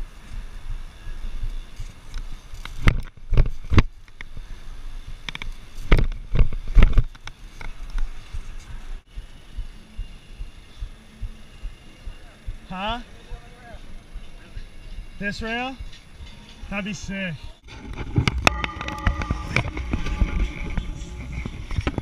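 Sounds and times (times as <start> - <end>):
bike knocks and rattles: 2.6 - 4.4, 5.1 - 8.8
tyre and wind rumble: 17.5 - 22.0.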